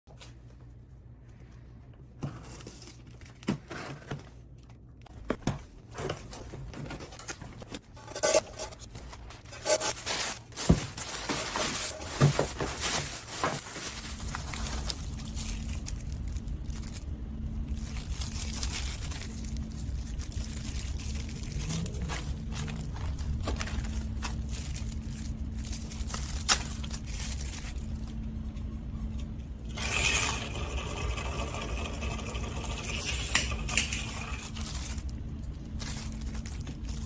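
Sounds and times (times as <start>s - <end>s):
steady low hum: 0.1s - 37.0s
plastic bag rustling: 6.1s - 28.4s, 33.6s - 37.0s.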